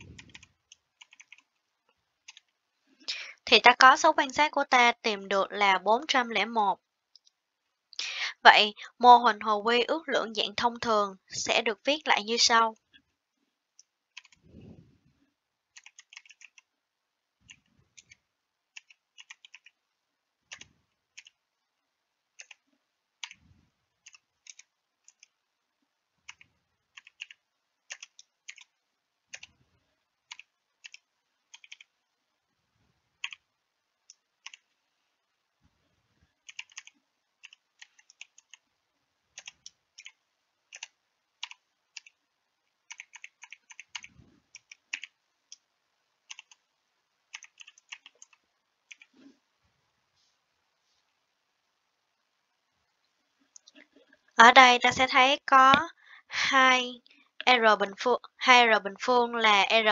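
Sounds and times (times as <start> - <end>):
typing on keyboard: 0.0 - 1.5, 2.2 - 2.5, 14.1 - 14.4, 15.7 - 16.7, 17.5 - 19.8, 20.5 - 21.4, 22.4 - 22.6, 23.2 - 23.4, 24.0 - 25.3, 26.2 - 28.7, 29.3 - 29.6, 30.3 - 31.9, 33.2 - 33.4, 34.4 - 34.7, 36.4 - 38.6, 39.3 - 42.2, 42.9 - 45.6, 46.3 - 46.6, 47.3 - 49.1.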